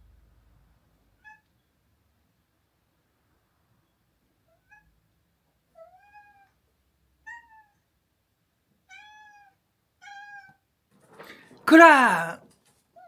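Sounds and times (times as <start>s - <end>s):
cat meowing: 5.8s - 6.6s, 7.2s - 7.8s, 8.9s - 10.6s.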